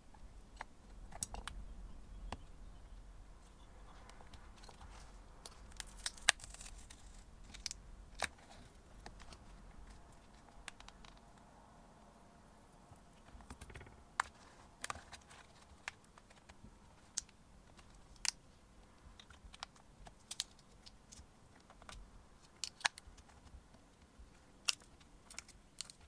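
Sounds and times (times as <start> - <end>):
plastic clicks and snaps: 9.0 - 11.3, 19.2 - 23.5, 24.6 - 26.0.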